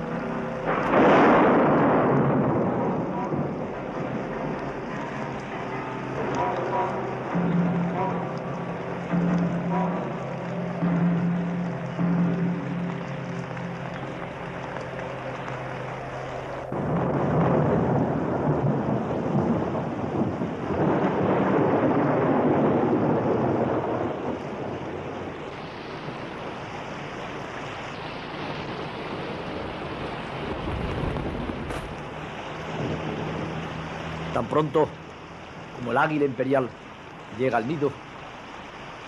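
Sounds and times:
held music chord: 0:00.0 - 0:17.1
thunder rolling: 0:00.0 - 0:37.4
heavy rain: 0:00.0 - 0:39.0.

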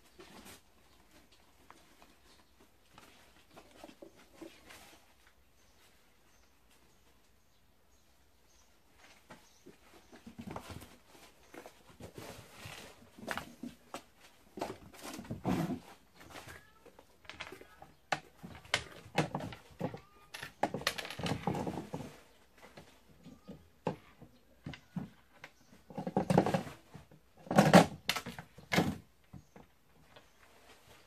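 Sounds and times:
objects knocking and scuffing: 0:09.0 - 0:16.6.

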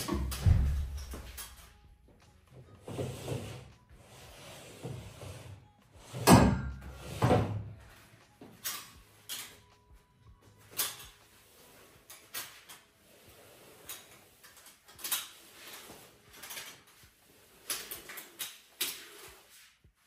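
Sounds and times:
mop swishing over floor: 0:00.0 - 0:20.0
metal chair scraping wooden floor: 0:02.5 - 0:07.9, 0:10.8 - 0:19.8.

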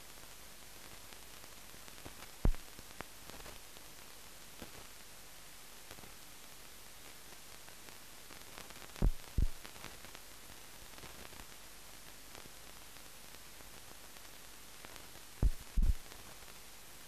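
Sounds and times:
film soundtrack hiss: 0:00.0 - 0:17.0
short low thumps: 0:15.4 - 0:16.0.

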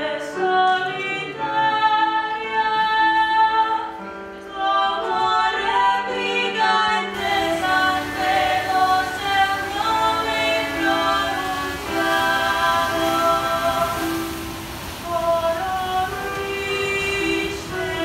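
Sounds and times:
choir singing held notes: 0:04.4 - 0:18.0.

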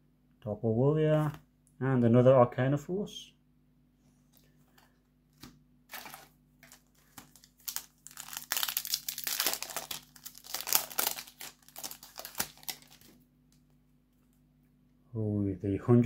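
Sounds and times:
foil wrapper crinkling: 0:05.9 - 0:13.2.

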